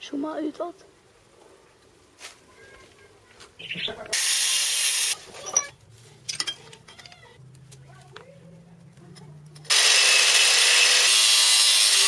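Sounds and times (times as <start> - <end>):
loud hiss: 4.1 - 5.2.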